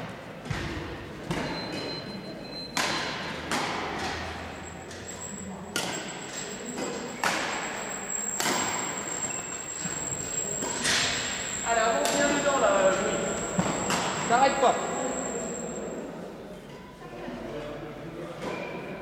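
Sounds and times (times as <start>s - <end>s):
racket hitting shuttlecock: 2.8s - 4.2s, 5.8s - 6.0s, 8.4s - 9.0s.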